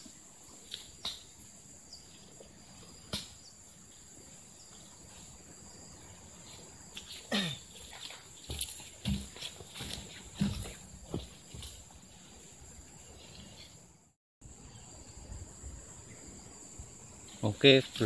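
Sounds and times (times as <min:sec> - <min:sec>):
rubber boot squelching in mud: 0:07.0 - 0:11.8.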